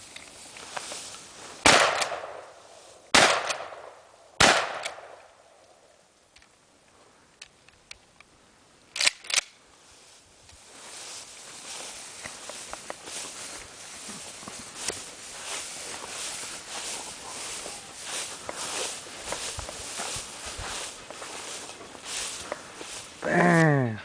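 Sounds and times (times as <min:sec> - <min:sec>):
shotgun shots with echo: 0:01.6 - 0:02.4, 0:03.1 - 0:05.2
shotgun pump action clacks: 0:09.0 - 0:09.6.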